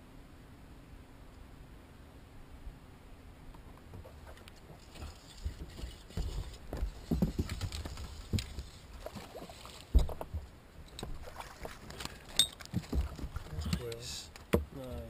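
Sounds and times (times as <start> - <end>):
knocks and thumps on boat deck: 9.9 - 11.2, 12.7 - 13.8, 14.4 - 15.0.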